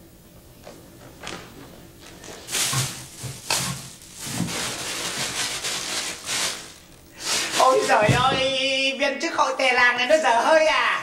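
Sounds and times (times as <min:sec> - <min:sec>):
plastic bags rustling: 0:02.0 - 0:08.5.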